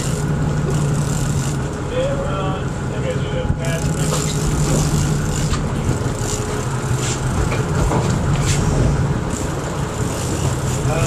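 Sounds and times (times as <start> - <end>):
boat engine idling: 0.0 - 11.0
water noise: 0.0 - 11.0
wind: 0.0 - 11.0.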